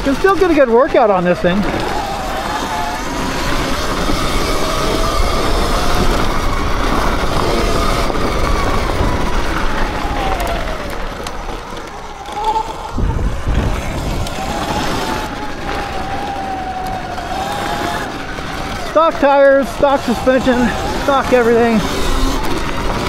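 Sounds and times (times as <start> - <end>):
electric motor whine: 0.0 - 23.0
wind and ground noise: 0.0 - 23.0
low thumps: 12.9 - 16.1.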